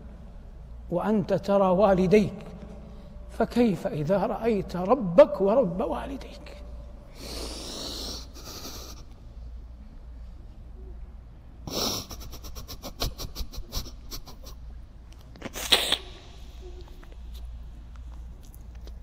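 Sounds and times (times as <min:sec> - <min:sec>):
steady low hum: 0:00.0 - 0:19.0
man sobbing and sniffing: 0:07.2 - 0:09.2, 0:11.7 - 0:14.8.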